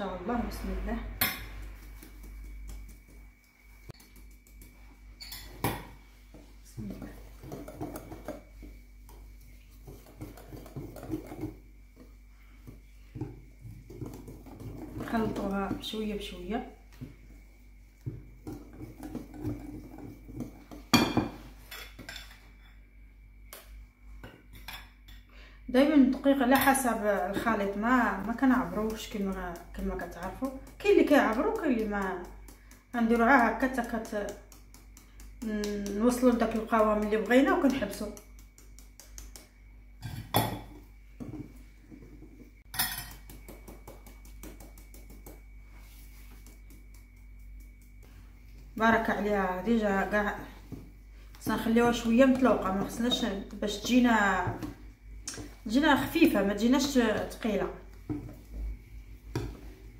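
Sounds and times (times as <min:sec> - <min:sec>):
whisk beating batter: 0:01.6 - 0:05.0, 0:06.3 - 0:16.4, 0:18.0 - 0:21.0, 0:26.5 - 0:39.6, 0:43.3 - 0:48.0.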